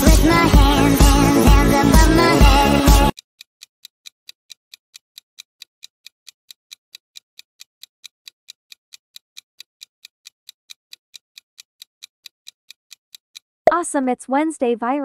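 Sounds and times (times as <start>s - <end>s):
countdown timer ticking: 0.0s - 3.2s.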